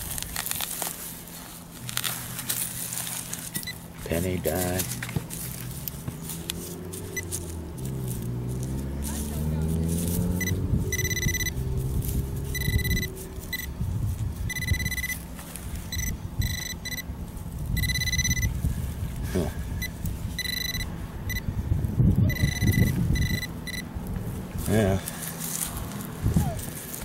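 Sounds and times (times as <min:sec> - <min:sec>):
metal detector pinpointer beeping: 0:03.6 - 0:03.8, 0:10.3 - 0:11.6, 0:12.5 - 0:13.8, 0:14.5 - 0:15.3, 0:15.9 - 0:17.1, 0:17.8 - 0:18.6, 0:19.8 - 0:21.5, 0:22.2 - 0:23.9
wind rumble on microphone: 0:07.4 - 0:15.1, 0:15.7 - 0:25.0, 0:25.6 - 0:27.0.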